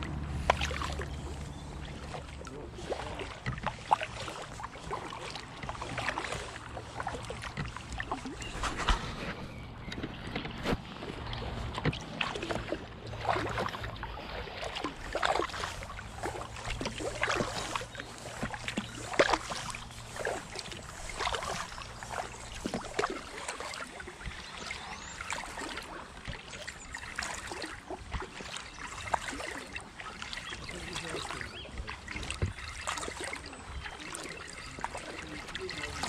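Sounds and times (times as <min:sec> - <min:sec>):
paddle splashing in water: 0:00.0 - 0:36.0.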